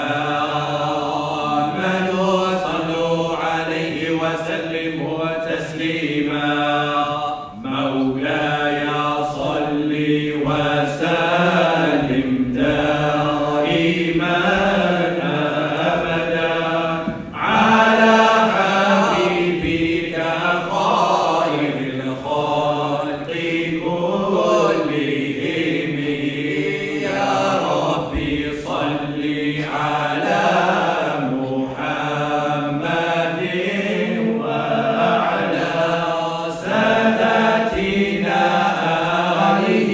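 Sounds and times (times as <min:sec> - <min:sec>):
men chanting in unison: 0:00.0 - 0:39.9.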